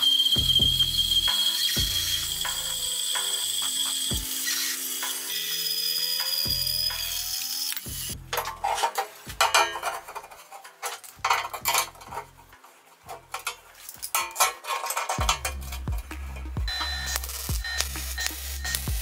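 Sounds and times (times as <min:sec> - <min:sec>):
background music: 0:00.0 - 0:19.0
metal clamps clanking on steel: 0:08.3 - 0:16.5.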